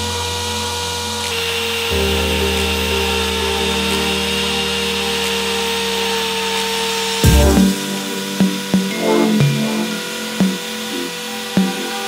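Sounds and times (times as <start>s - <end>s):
background music: 1.4s - 12.0s.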